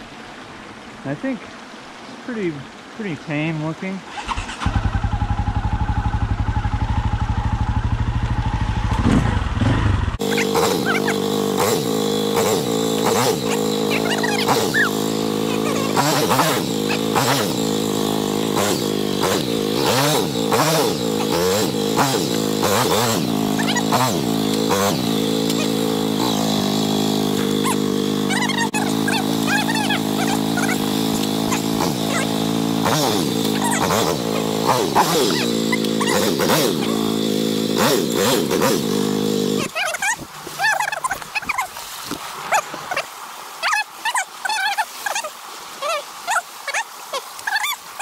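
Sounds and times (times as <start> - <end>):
dirt bike engine revving: 4.1 - 41.7.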